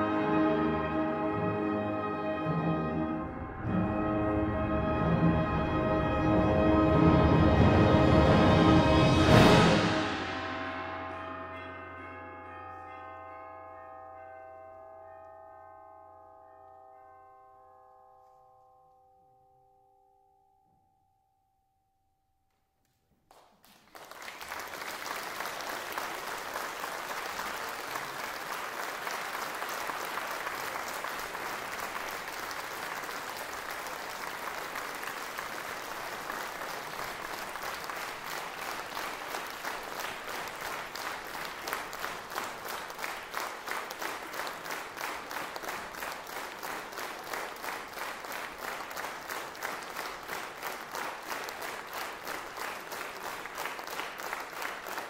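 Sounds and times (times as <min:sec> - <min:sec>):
audience applauding: 0:23.3 - 0:55.0.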